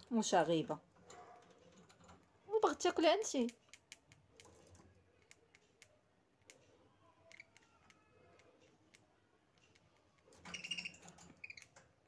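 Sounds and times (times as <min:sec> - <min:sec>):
beaks clicking on seed: 0:07.2 - 0:11.8.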